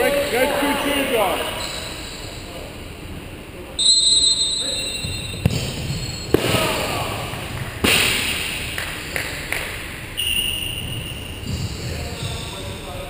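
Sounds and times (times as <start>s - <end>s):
ball kicked and bouncing on wood court: 5.0s - 6.6s, 10.7s - 12.4s.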